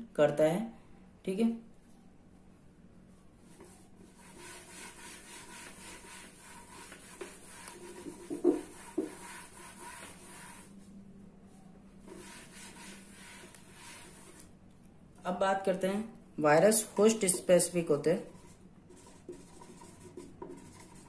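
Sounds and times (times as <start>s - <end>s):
hand wiping marker board: 3.5s - 10.8s, 12.0s - 14.5s, 18.3s - 21.0s.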